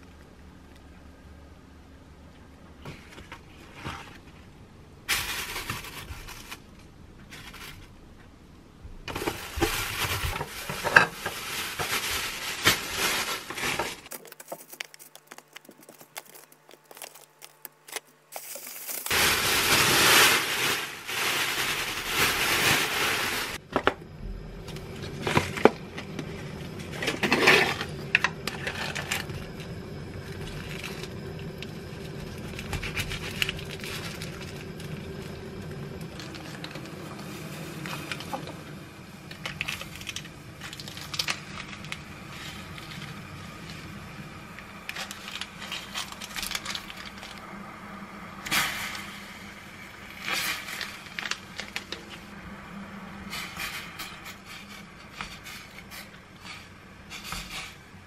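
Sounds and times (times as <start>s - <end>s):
plastic wrap crinkling: 5.1s - 8.0s, 9.1s - 23.6s, 24.8s - 38.5s, 39.2s - 47.5s, 49.9s - 52.3s.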